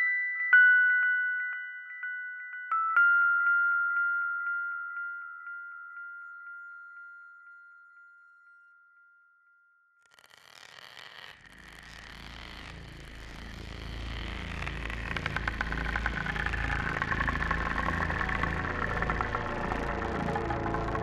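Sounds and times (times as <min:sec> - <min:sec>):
scratching rapid clicking texture: 0:10.1 - 0:21.0.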